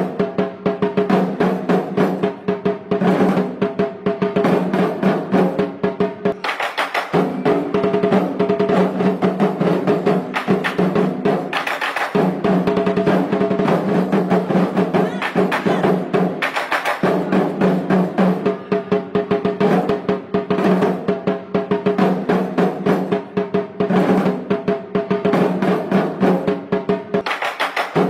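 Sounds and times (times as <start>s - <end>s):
rapid drumming with rolls: 0.0s - 28.0s.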